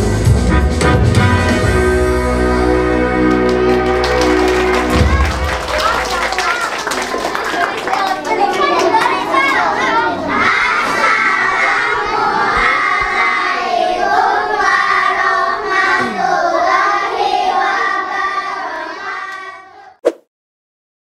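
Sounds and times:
children singing together: 0:08.3 - 0:20.0
short blip: 0:20.0 - 0:20.3.

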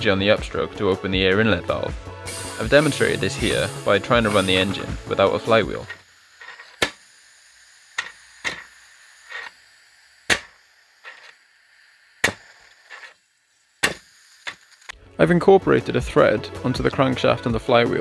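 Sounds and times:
short puffs of air: 0:02.2 - 0:05.0.

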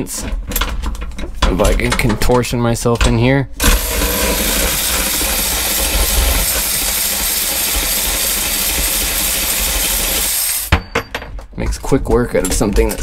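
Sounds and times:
cordless power driver running: 0:03.6 - 0:10.7.

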